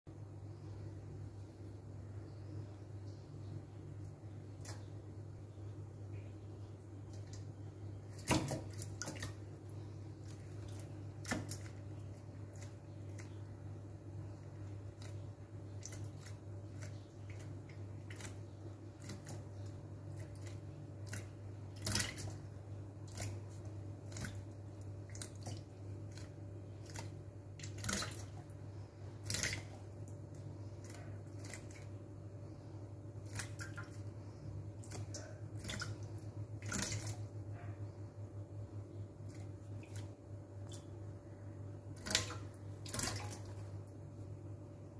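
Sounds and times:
steady low hum: 0.1s - 44.9s
bird splashing in water: 8.1s - 9.6s, 19.0s - 22.5s, 23.1s - 28.6s, 29.2s - 30.2s, 33.2s - 34.1s, 34.8s - 37.3s, 42.0s - 43.8s.

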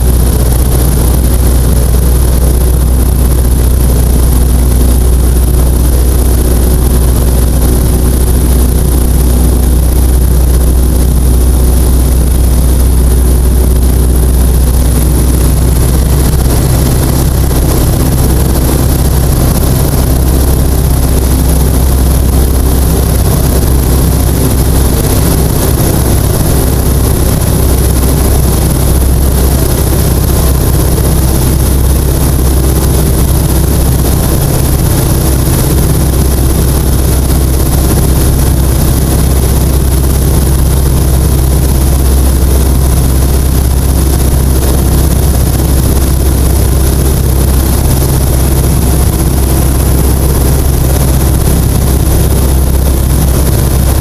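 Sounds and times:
light aircraft engine drone: 0.0s - 54.0s.

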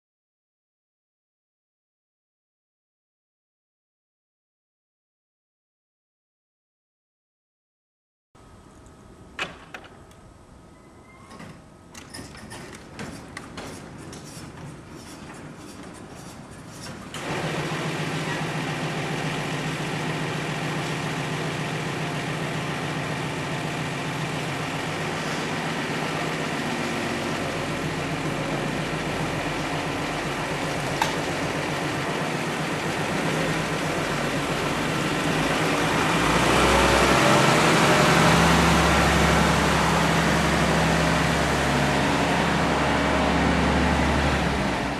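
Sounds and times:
diesel truck engine running: 17.2s - 44.9s.

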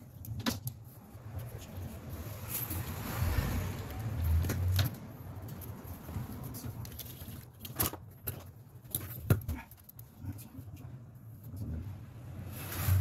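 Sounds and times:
clicks and knocks of handling: 4.4s - 10.5s.

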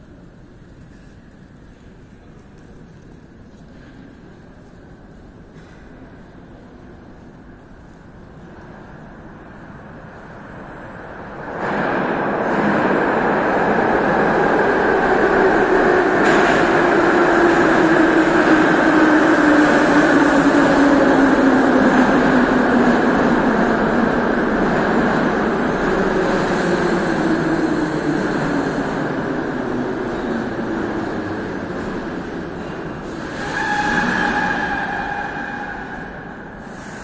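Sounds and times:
metro train rumbling: 0.0s - 37.0s.

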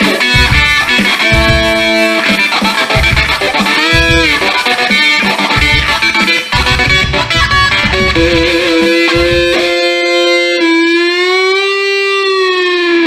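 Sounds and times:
heavy low rhythm: 0.0s - 10.4s
electric guitar playing: 0.0s - 13.0s.

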